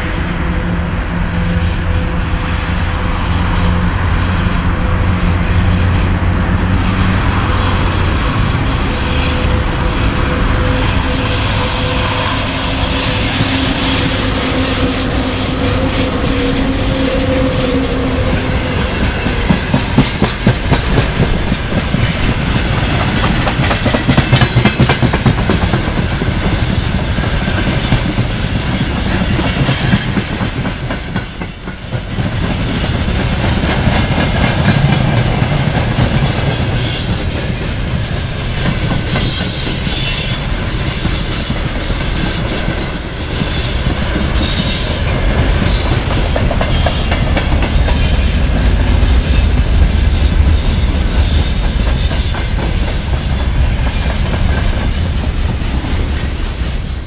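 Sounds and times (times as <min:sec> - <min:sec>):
electric locomotive humming: 0:00.0 - 0:57.0
train wheels clicking over rail joints: 0:05.2 - 0:57.0.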